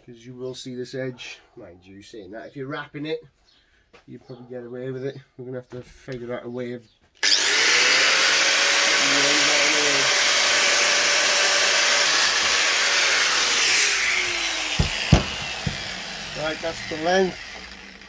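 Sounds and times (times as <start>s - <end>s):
angle grinder cutting: 7.2s - 18.0s.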